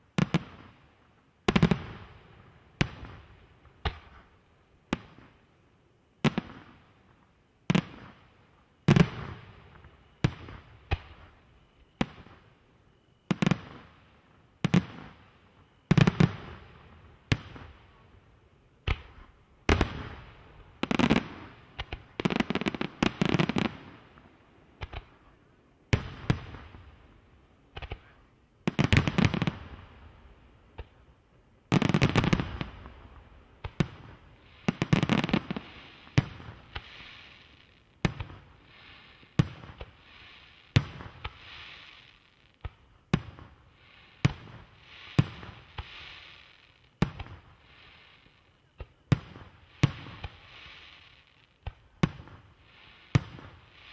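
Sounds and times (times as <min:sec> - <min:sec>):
firework bursts with sharp bangs: 0:00.0 - 0:05.5, 0:06.2 - 0:12.6, 0:13.2 - 0:18.1, 0:18.8 - 0:53.9
firework crackle: 0:18.8 - 0:25.3, 0:25.9 - 0:53.9.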